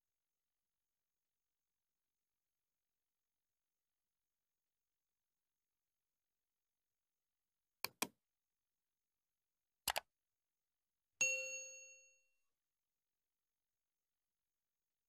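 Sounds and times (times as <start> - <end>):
bright bell ding: 11.2 - 12.2.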